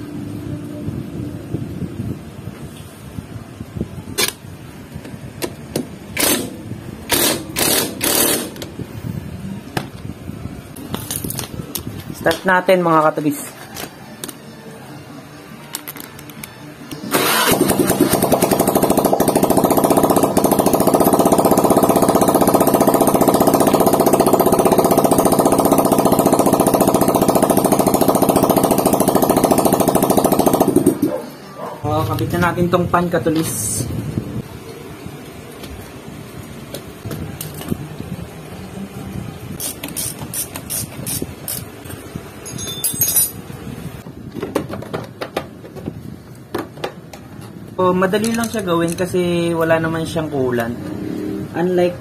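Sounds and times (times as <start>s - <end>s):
scooter engine idling: 17.0s - 31.4s
metal bolts clinking in hand: 42.4s - 43.5s, 48.2s - 49.1s.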